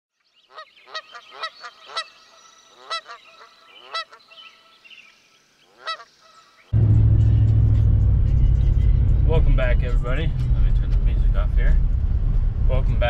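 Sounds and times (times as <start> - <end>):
geese honking: 0.5 - 4.8, 5.7 - 6.7.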